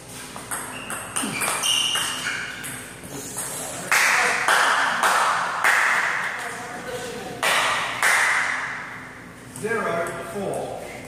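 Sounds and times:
table tennis ball hits: 0:00.4 - 0:06.2.

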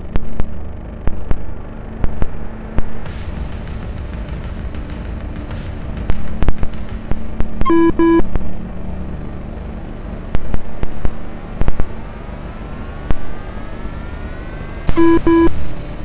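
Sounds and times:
short electronic beeps: 0:07.7 - 0:08.2, 0:15.0 - 0:15.5.

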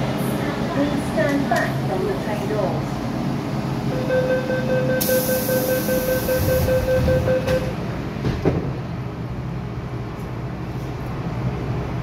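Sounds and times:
train rumble: 0:00.0 - 0:04.3, 0:05.0 - 0:12.0
rapid pulsing beep: 0:03.9 - 0:07.7.

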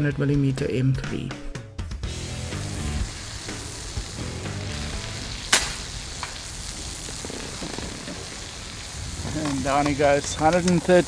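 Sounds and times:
music: 0:00.0 - 0:05.6
steady hiss: 0:02.1 - 0:11.0
suppressed air rifle shot: 0:05.4 - 0:06.4.

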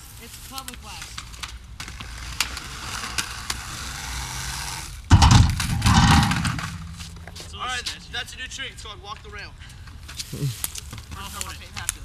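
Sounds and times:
skateboard wheels rolling on pavement: 0:00.0 - 0:10.2
skateboard grinding a ledge: 0:01.8 - 0:07.5.

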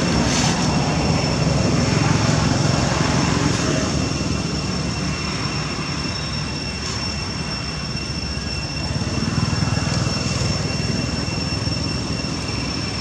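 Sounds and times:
outdoor background rumble: 0:00.0 - 0:13.0.

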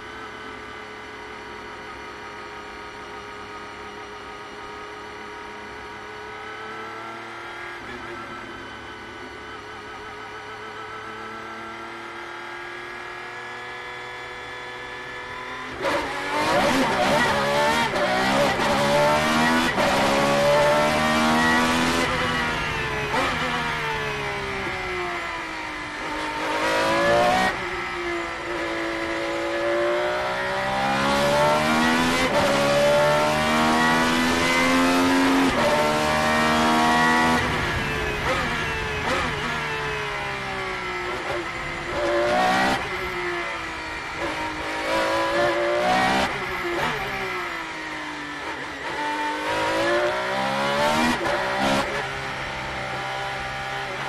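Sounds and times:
race car engine accelerating: 0:15.0 - 0:54.0.

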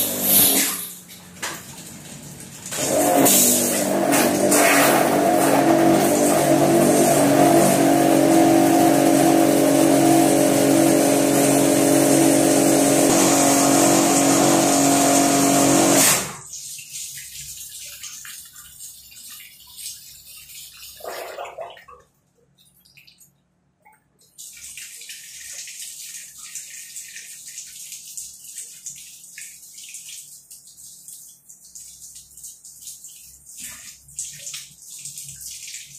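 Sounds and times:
pressure washer motor humming: 0:02.8 - 0:16.4.

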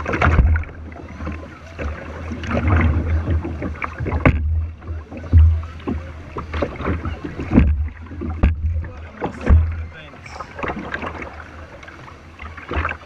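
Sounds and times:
paddles splashing water: 0:00.0 - 0:13.0
sharp knocks: 0:07.5 - 0:09.8.

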